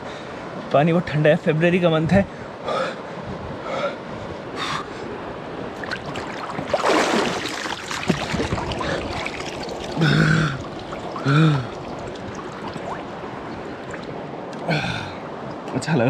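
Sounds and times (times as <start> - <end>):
stream rushing: 0.0 - 16.0
water splashing: 5.7 - 15.6
person gasping: 11.2 - 11.8, 14.6 - 15.2.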